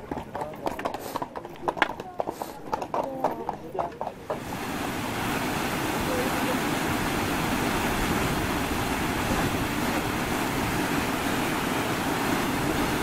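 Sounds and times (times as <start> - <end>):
waterfall rushing over rocks: 4.2 - 13.0.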